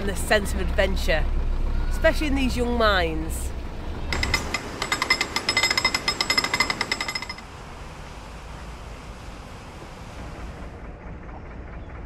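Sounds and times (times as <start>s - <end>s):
steady background hiss: 3.5s - 10.8s
ratchet clicking metallic clatter: 4.1s - 7.4s.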